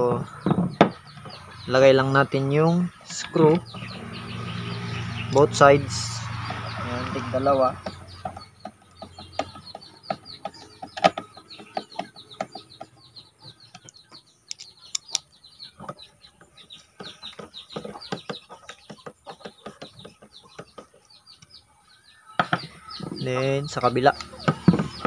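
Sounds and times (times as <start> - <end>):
birds chirping: 0.0 - 25.0
clicks of plastic parts handled: 13.7 - 16.0.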